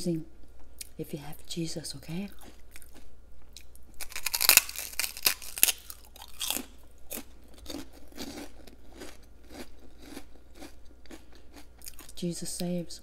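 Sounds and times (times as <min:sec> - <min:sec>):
person crunching prawn cracker: 0:02.3 - 0:12.2.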